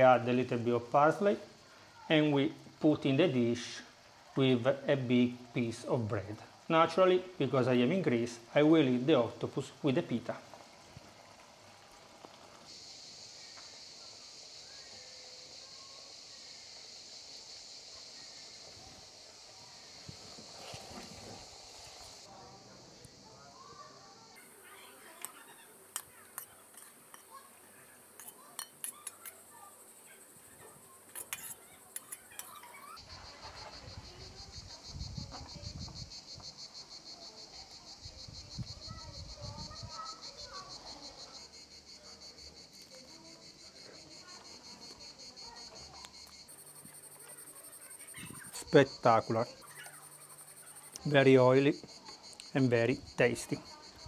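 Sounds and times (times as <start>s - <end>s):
cicadas singing: 0.0s - 54.0s
metal spoon clinking on plate: 28.2s - 29.4s.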